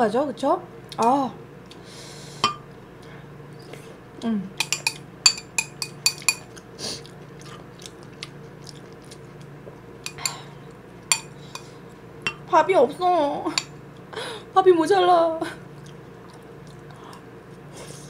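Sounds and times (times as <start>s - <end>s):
metal spoon clinking on ceramic bowl: 4.6s - 6.5s, 10.1s - 10.4s, 11.1s - 11.6s, 12.2s - 12.5s
chewing: 6.0s - 12.1s, 15.7s - 18.0s.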